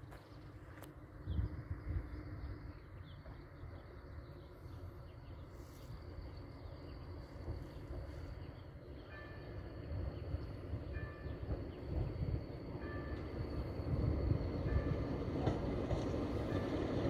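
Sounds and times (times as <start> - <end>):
wind buffeting the microphone: 1.2 - 2.6, 13.5 - 17.0.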